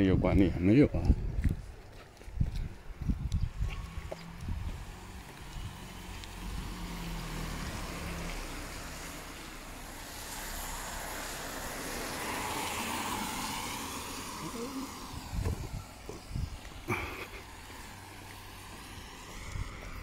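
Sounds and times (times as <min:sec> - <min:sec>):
tyres hissing on wet road: 0:04.8 - 0:20.0.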